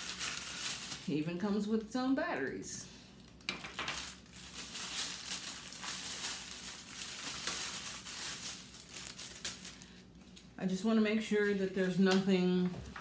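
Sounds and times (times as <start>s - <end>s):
packaging rustling: 0.0s - 1.3s, 3.2s - 10.5s.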